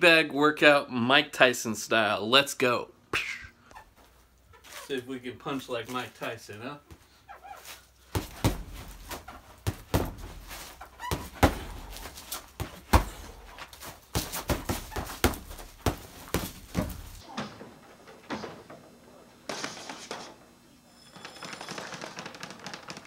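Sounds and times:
gloves punching heavy bag: 0:08.1 - 0:17.2.

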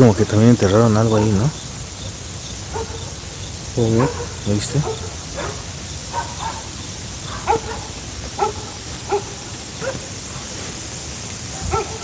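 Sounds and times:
dog barking: 0:01.0 - 0:01.6, 0:02.7 - 0:03.2, 0:03.9 - 0:10.1, 0:11.5 - 0:12.0.

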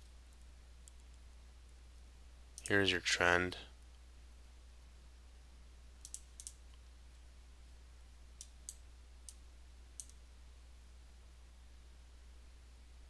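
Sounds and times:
faint low hum: 0:00.0 - 0:13.0
computer mouse clicks: 0:06.0 - 0:06.9, 0:08.4 - 0:09.4, 0:10.0 - 0:10.2.

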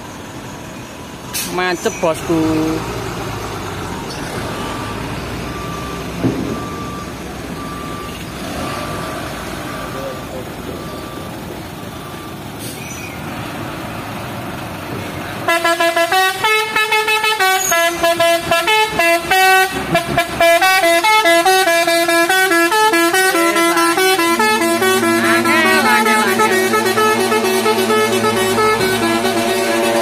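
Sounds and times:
traffic: 0:00.0 - 0:30.0
truck engines running: 0:00.0 - 0:30.0
musical truck air horn: 0:15.5 - 0:30.0.

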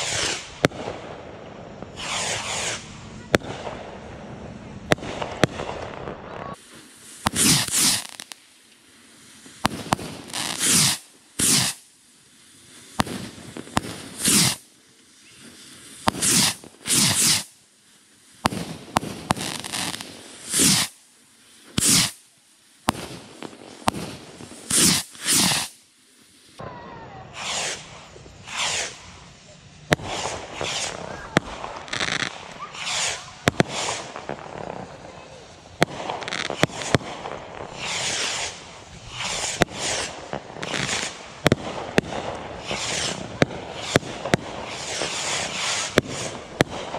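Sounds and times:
rocket pops: 0:00.0 - 0:01.1, 0:07.2 - 0:08.8, 0:09.6 - 0:11.9, 0:13.0 - 0:17.5, 0:18.4 - 0:21.0, 0:21.7 - 0:22.2, 0:22.8 - 0:25.8, 0:29.9 - 0:46.9
bottle rockets whooshing: 0:24.7 - 0:25.8.

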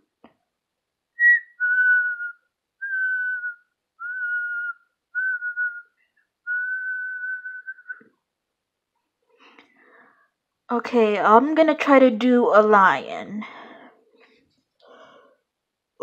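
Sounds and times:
person whistling: 0:01.2 - 0:08.1.

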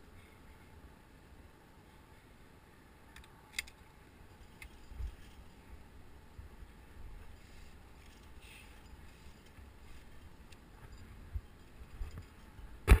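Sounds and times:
wind rumble on microphone: 0:09.0 - 0:13.0.

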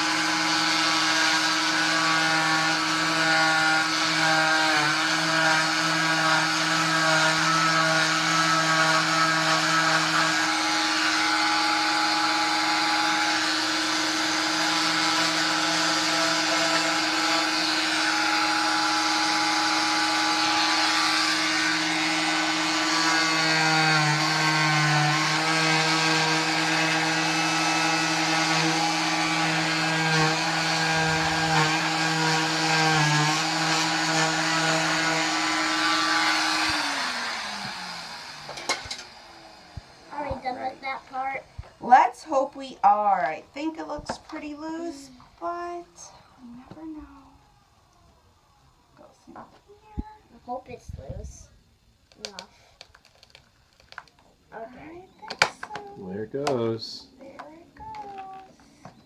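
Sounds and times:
cast saw motor whine: 0:00.0 - 0:46.5
vacuum running: 0:00.0 - 0:47.7.

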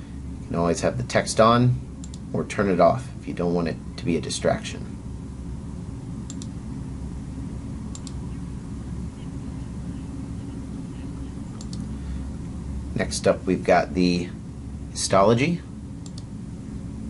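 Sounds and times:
steady low hum: 0:00.0 - 0:17.0
computer mouse double clicks: 0:07.9 - 0:08.2, 0:11.6 - 0:11.9.

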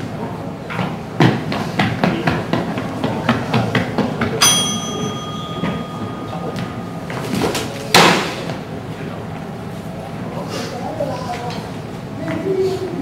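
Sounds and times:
sword strike ringing metallic: 0:04.4 - 0:07.6.

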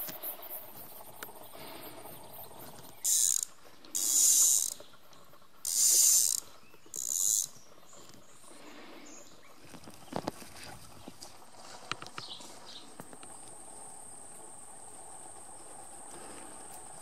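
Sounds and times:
fly reel ratchet buzzing: 0:03.0 - 0:04.8, 0:05.6 - 0:07.6.

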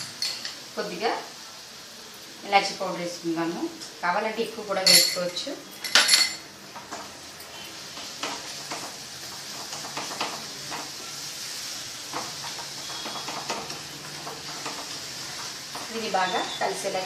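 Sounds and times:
halwa sizzling in a pan: 0:00.0 - 0:17.0
wooden spatula scraping pan: 0:12.0 - 0:16.6.

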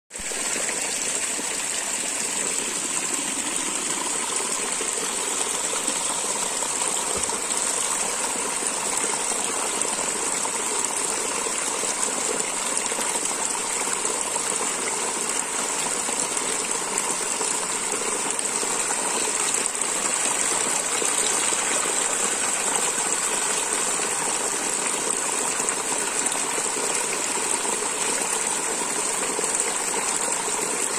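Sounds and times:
stream splashing over rocks: 0:00.1 - 0:30.9.

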